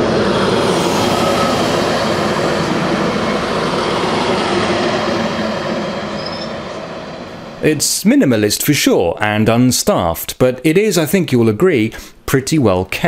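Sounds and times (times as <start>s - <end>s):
diesel railcar engine hum: 0.0s - 8.4s
wheel and rail rumble: 0.0s - 8.9s.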